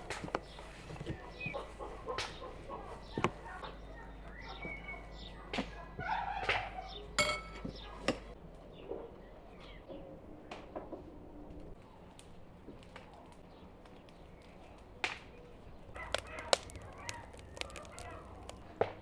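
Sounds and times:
birds chirping: 0.0 - 10.2
metal spoon clinking on wood: 7.2 - 7.7.

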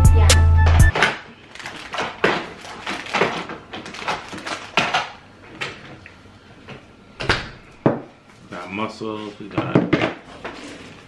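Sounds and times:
plastic containers and paper bags rustling: 0.9 - 6.2, 8.2 - 11.0.

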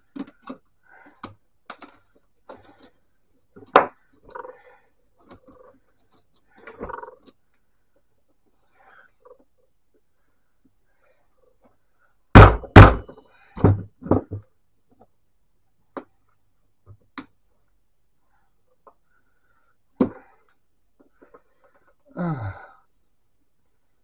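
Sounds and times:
heavy thunks on metal frame: 12.4 - 14.3.

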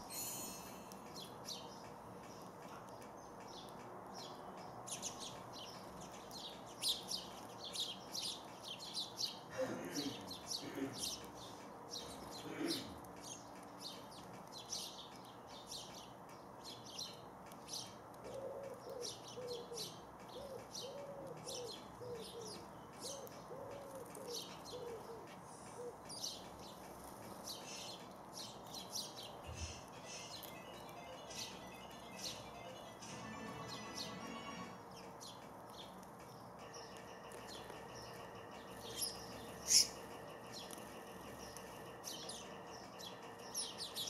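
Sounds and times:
sparrows chirping: 0.0 - 44.0
pigeon cooing: 18.3 - 26.0.

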